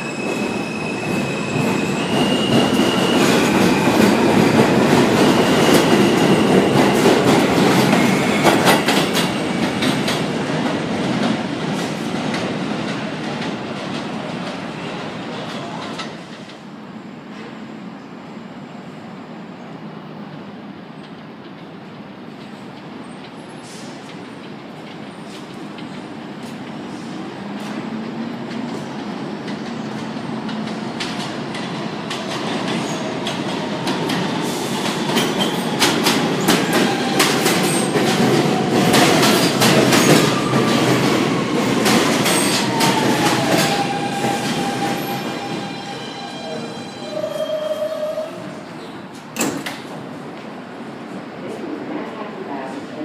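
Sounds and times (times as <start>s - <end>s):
train brakes whining: 0.0s - 4.4s, 34.1s - 48.7s
subway train approaching: 0.0s - 53.0s.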